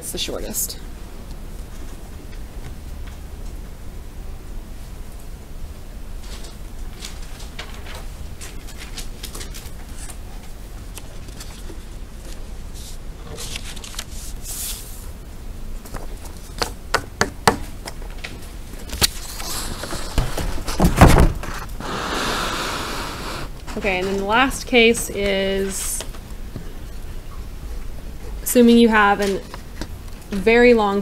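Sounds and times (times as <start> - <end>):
paper rustling: 6.2 - 15.1
paper sliding across a desk: 12.7 - 15.1, 19.2 - 20.6.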